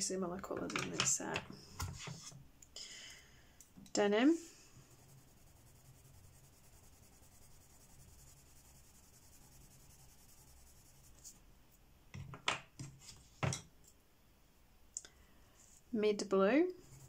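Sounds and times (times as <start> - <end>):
pencil rubbing on paper: 4.8 - 11.4, 16.8 - 17.0.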